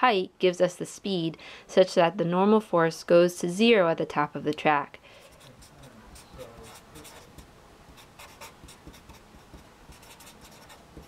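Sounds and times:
marker scratching on paper: 5.2s - 11.0s.

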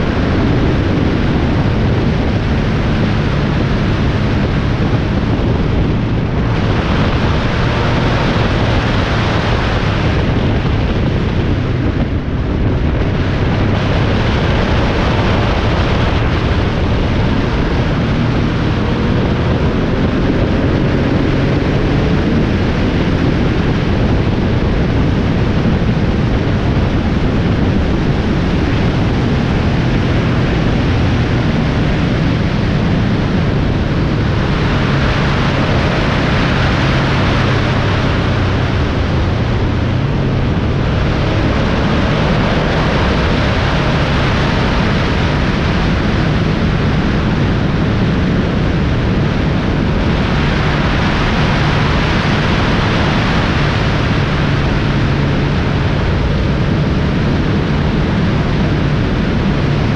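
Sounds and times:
engine drone: 0.0s - 59.9s
road and wind noise: 0.0s - 59.9s.

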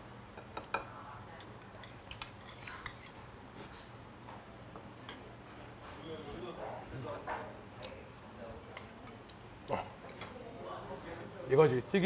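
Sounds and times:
utensils clinking on metal bowl: 1.8s - 4.0s.

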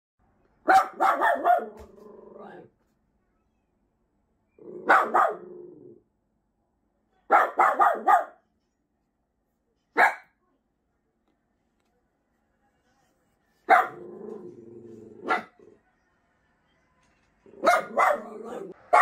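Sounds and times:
small dog barking: 0.7s - 2.6s, 4.8s - 5.6s, 7.3s - 8.4s, 10.0s - 10.4s, 13.7s - 14.4s, 15.2s - 15.6s, 17.6s - 19.0s
dog growling: 1.8s - 2.7s, 4.6s - 6.0s, 13.9s - 15.7s.

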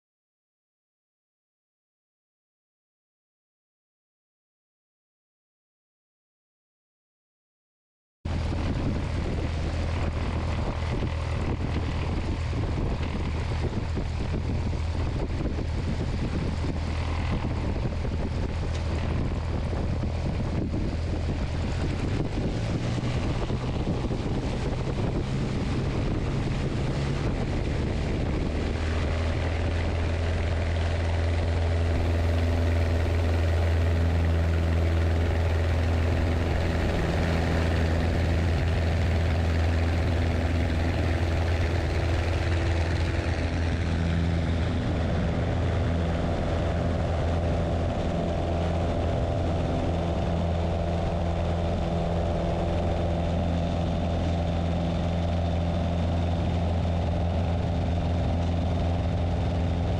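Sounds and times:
small plane engine and propeller: 8.3s - 59.9s.

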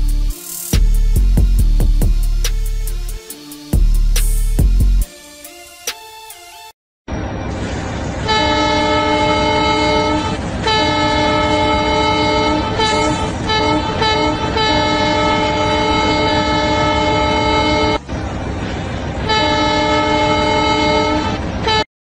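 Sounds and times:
low engine rumble: 7.1s - 21.8s
air horn blasts: 8.2s - 18.0s, 19.2s - 21.9s.

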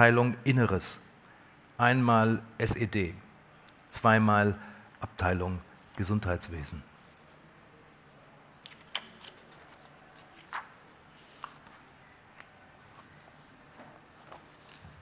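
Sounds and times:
paper rustling: 7.0s - 15.0s.

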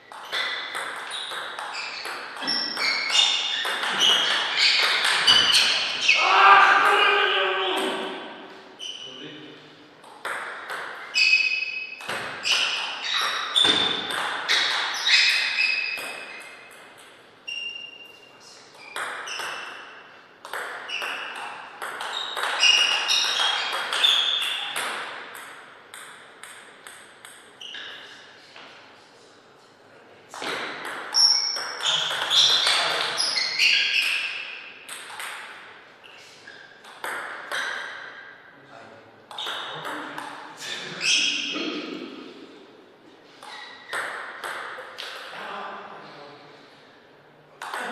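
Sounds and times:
table tennis ball hits: 0.1s - 7.1s, 10.0s - 17.9s, 18.8s - 28.0s, 30.3s - 35.7s, 36.8s - 38.4s, 39.3s - 40.5s, 43.4s - 45.4s, 47.6s - 47.9s.

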